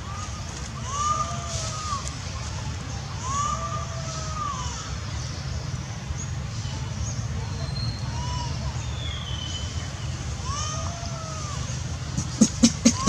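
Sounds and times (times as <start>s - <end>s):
macaque coo calls: 10.4s - 13.0s.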